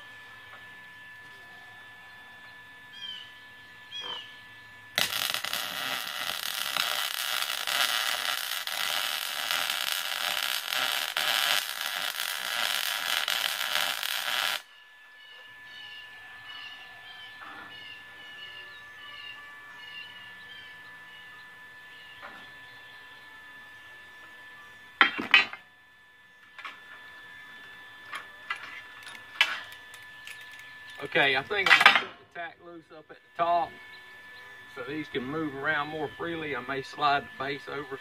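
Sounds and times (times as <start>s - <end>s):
birds chirping: 2.1s - 4.8s, 14.7s - 23.2s
welding arc crackling: 4.9s - 14.7s.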